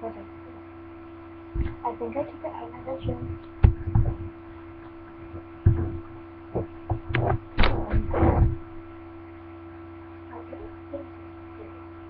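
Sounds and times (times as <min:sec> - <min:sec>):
electrical hum: 0:00.0 - 0:12.0
handling thumps and knocks: 0:01.6 - 0:01.8, 0:02.9 - 0:08.9.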